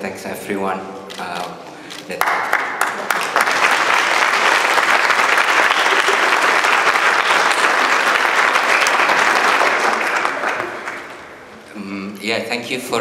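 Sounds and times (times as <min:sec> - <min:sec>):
audience applauding: 0:02.1 - 0:11.6.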